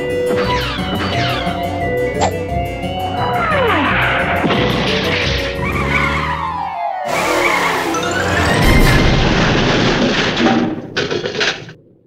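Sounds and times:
background music: 0.0 - 10.3
loud low rumble: 8.3 - 11.1.

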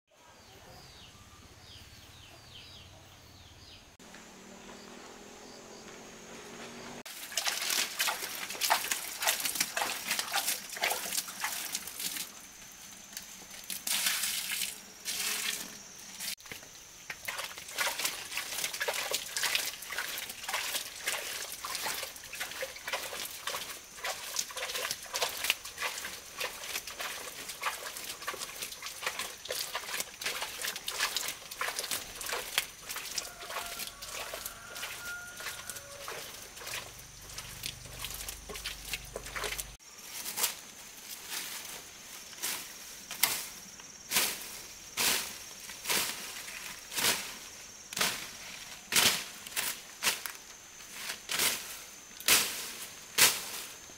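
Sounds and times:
animals eating feed: 7.1 - 13.9, 16.4 - 39.8.

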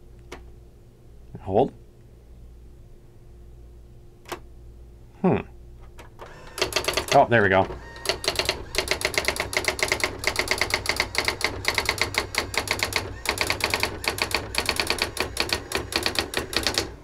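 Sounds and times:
typewriter character strikes: 6.5 - 7.3, 8.0 - 16.9.

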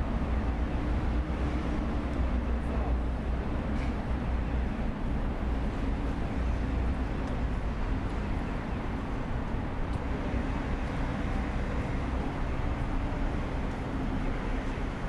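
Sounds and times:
city road traffic rumble: 0.0 - 15.0.

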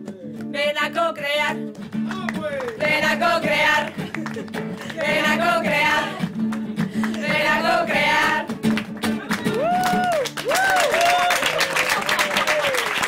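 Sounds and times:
hand claps: 0.0 - 0.6, 1.7 - 2.9, 3.6 - 5.3, 5.9 - 13.0
acoustic guitar: 0.0 - 10.5
group singing: 2.8 - 4.2, 4.8 - 8.6.

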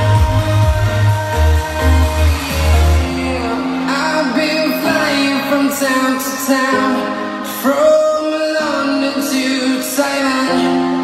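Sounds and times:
heavy bass line: 0.0 - 6.0
pop song with singing: 0.0 - 11.0.

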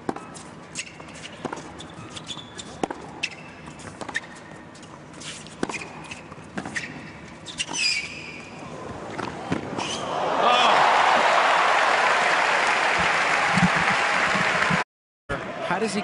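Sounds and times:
sneakers squeaking on court: 0.0 - 10.1.

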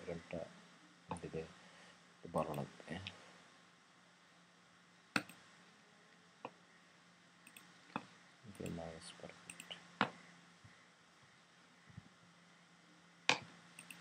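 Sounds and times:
computer mouse clicks: 5.2 - 5.4, 7.4 - 8.8, 9.5 - 10.2, 13.3 - 14.0.

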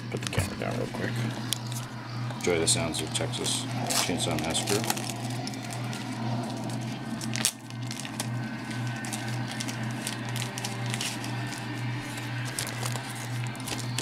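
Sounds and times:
steady low hum: 0.0 - 14.0
packaging crinkling and tearing: 3.8 - 14.0.

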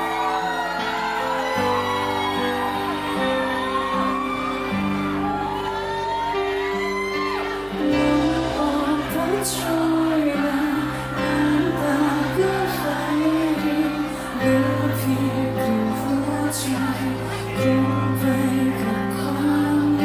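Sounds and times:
woman singing: 7.8 - 20.0.

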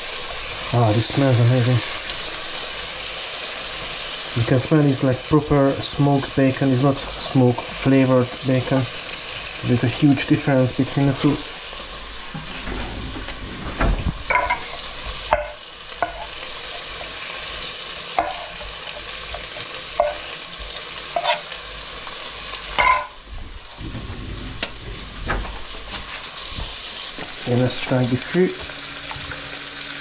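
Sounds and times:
bacon sizzling in a pan: 0.0 - 12.6, 14.0 - 30.0
utensil scraping a pan: 18.2 - 20.4, 21.0 - 21.6.

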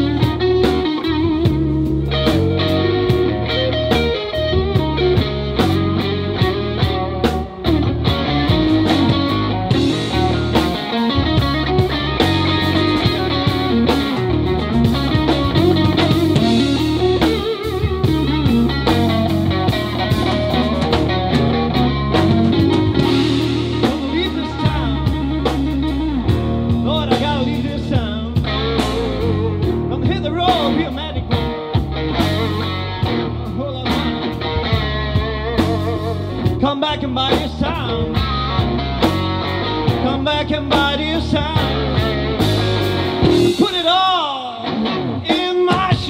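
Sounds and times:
bass guitar: 0.0 - 46.0
drum kit: 0.0 - 46.0
electric guitar: 0.0 - 46.0.

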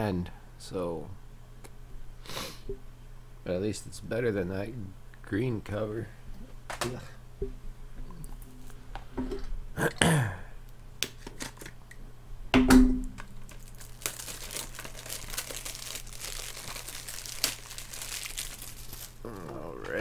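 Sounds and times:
plastic wrap crinkling and tearing: 13.2 - 20.0.

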